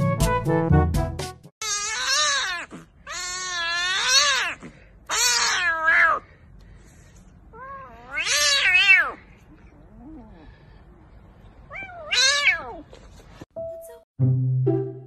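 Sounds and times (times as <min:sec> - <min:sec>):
kitten meowing loudly: 0:01.6 - 0:06.2, 0:07.6 - 0:09.2, 0:11.7 - 0:12.8.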